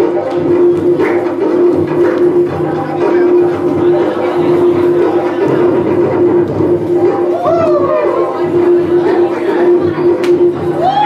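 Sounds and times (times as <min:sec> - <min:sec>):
loud music: 0:00.0 - 0:11.0.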